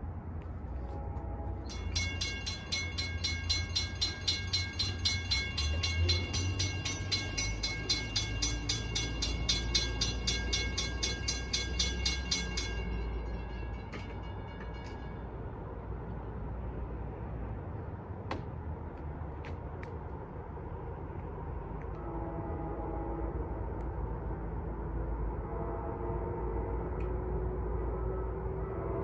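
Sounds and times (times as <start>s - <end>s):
crossing bell ringing: 0.9s - 16.3s.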